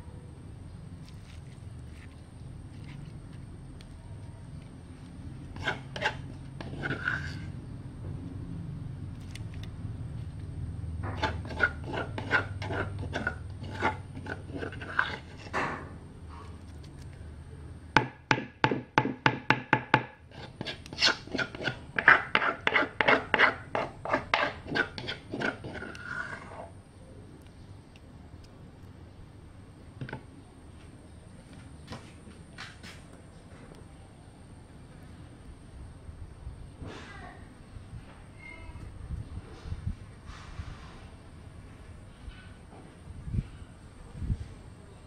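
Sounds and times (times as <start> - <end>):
pestle pounding in a mortar: 18.0 - 25.9.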